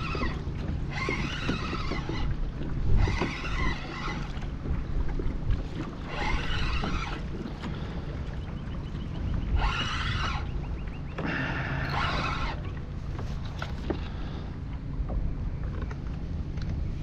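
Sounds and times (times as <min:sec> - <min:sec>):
spinning reel whirring: 0:00.0 - 0:04.6, 0:05.8 - 0:07.5, 0:09.5 - 0:10.5, 0:11.2 - 0:12.7
wind rumble on microphone: 0:00.0 - 0:17.0.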